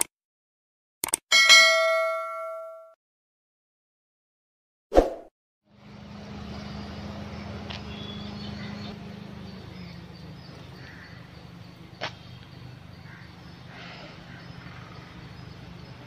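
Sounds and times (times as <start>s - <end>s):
sharp click: 1.0s - 1.2s
low mechanical hum: 5.7s - 16.0s
birds calling: 6.1s - 16.0s.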